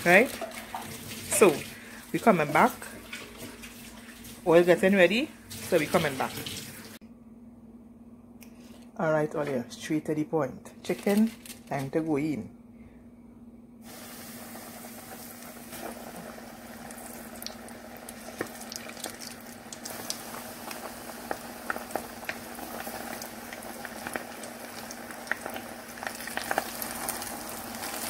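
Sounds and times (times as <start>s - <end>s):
chicken deep-frying in oil: 0.0s - 7.0s, 13.8s - 28.0s
steady low hum: 7.0s - 18.4s.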